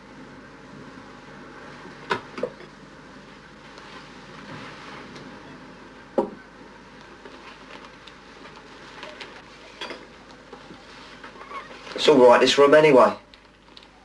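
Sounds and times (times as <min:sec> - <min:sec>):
low hiss: 0:00.0 - 0:14.0.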